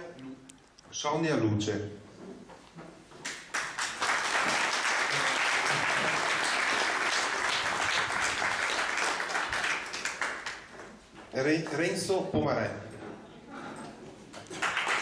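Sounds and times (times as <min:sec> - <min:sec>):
audience applauding: 0:03.2 - 0:10.9, 0:14.4 - 0:15.0.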